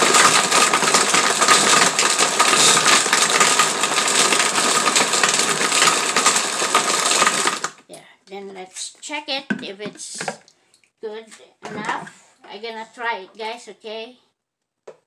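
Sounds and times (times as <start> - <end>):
ice clattering in blender jar: 0.0 - 7.8
blender motor whining: 0.0 - 7.9.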